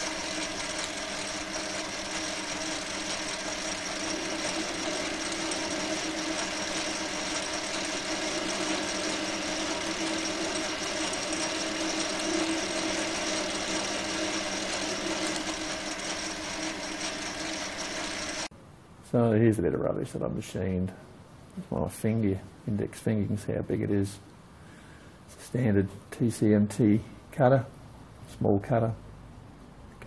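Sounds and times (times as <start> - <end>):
metal lathe whine: 0.0 - 18.5.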